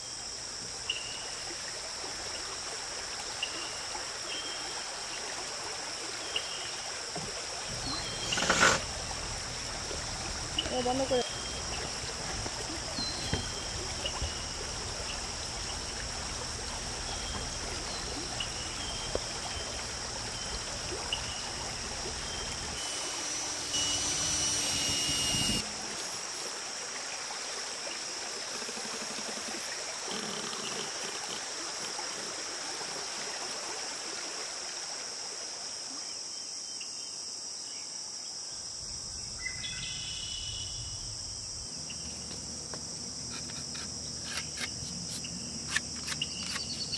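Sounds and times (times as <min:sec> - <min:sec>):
insects buzzing: 0:00.0 - 0:46.9
outdoor background hiss: 0:00.0 - 0:46.9
cordless drill driving screw: 0:08.2 - 0:08.9, 0:22.8 - 0:26.5.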